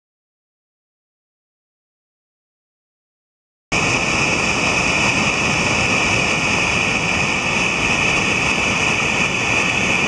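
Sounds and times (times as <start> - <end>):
stream rushing over rocks: 3.8 - 10.0.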